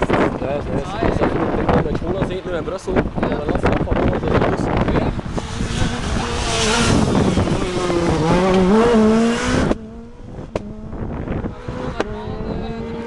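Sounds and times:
rally car engine revving: 3.0 - 13.0.

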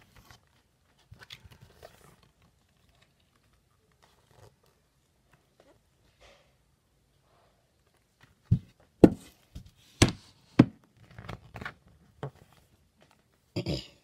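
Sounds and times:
handling knocks and thumps: 8.4 - 10.8.

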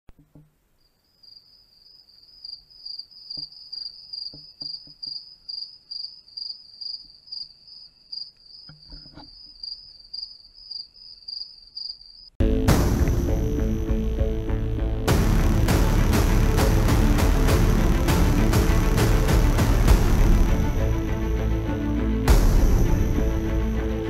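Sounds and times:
insect chirping: 0.7 - 12.4
loud electronic music: 12.4 - 24.0.

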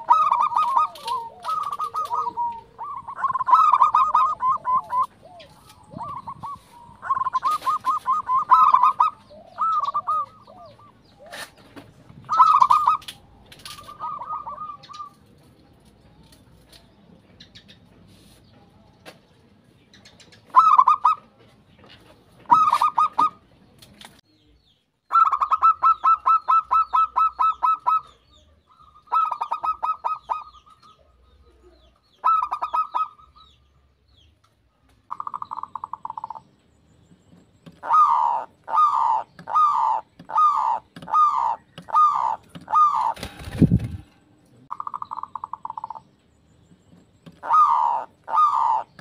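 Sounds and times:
dove cooing: 0.0 - 15.4, 20.5 - 21.4, 22.4 - 23.4, 25.1 - 28.2, 28.8 - 33.5, 35.1 - 36.5, 37.7 - 46.1, 47.3 - 49.0.

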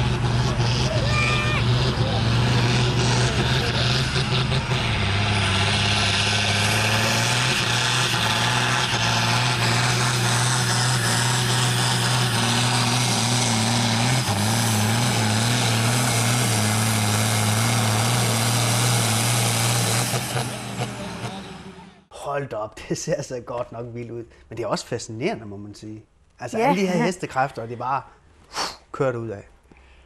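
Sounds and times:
tractor diesel engine under load: 0.0 - 22.1.

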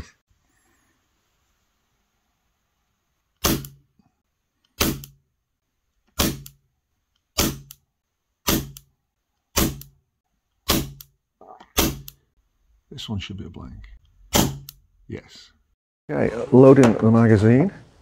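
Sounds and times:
air pistol shots: 3.4 - 3.8, 4.8 - 5.2, 6.2 - 6.6, 7.4 - 7.8, 8.4 - 8.8, 9.5 - 9.9, 10.6 - 11.1, 11.8 - 12.2, 14.3 - 14.7.

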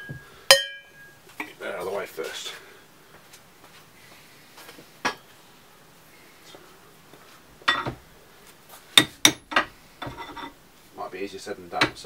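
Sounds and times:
hammer striking metal chisel: 0.0 - 1.1.

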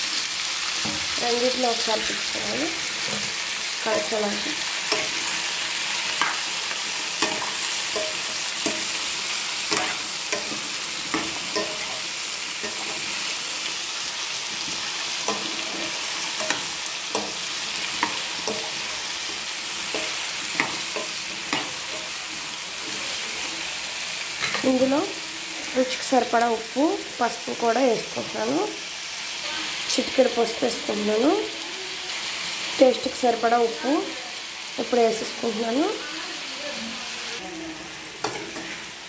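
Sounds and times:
vegetables sizzling in hot oil: 0.0 - 39.0
metal spatula scraping a pan: 1.8 - 24.8.

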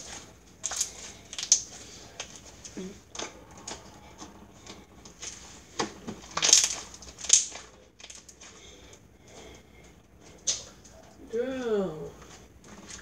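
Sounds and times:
slime being kneaded: 0.0 - 8.6.

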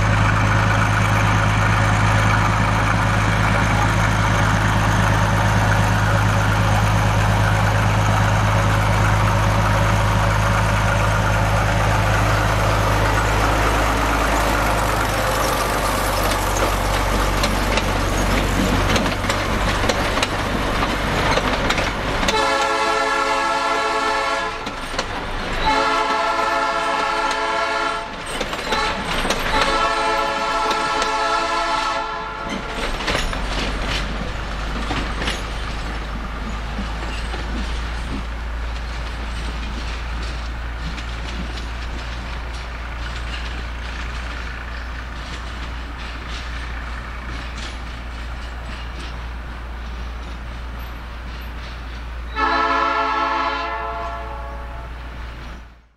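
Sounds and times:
train wheels clicking over rail joints: 0.0 - 54.2
low train rumble: 0.0 - 55.9
train horn blasts: 22.2 - 24.7, 25.6 - 28.1, 28.7 - 32.7, 52.3 - 55.1.

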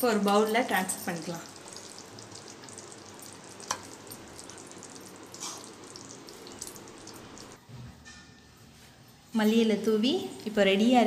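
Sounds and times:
gravy sizzling faintly: 0.0 - 7.7.

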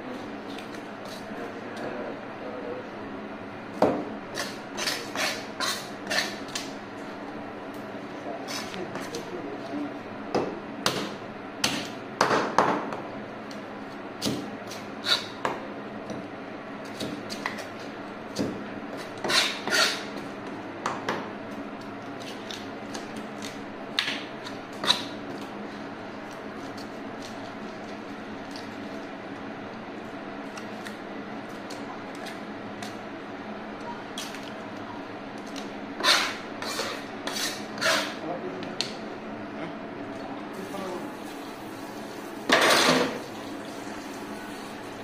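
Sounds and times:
steady low hum: 0.0 - 45.0
knife scraping fish: 4.3 - 6.6, 14.7 - 15.4, 18.9 - 20.2, 36.0 - 38.2.

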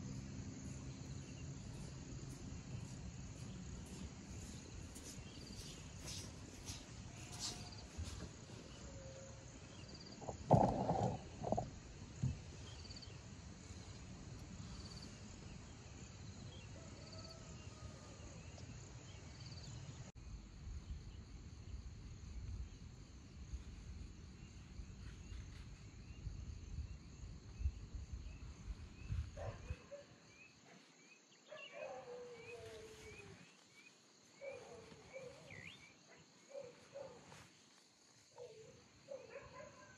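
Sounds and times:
insects chirring: 0.0 - 39.9.

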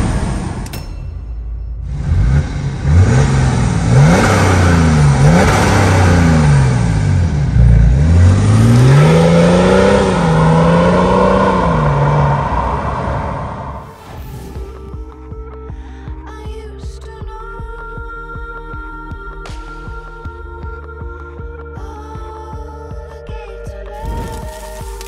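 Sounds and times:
car engine revving and accelerating: 1.8 - 15.0.

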